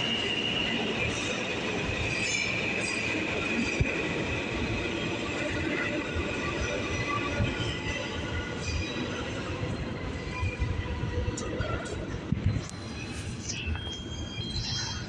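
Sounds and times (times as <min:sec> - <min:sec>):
subway train wheels squealing: 0:00.0 - 0:15.0.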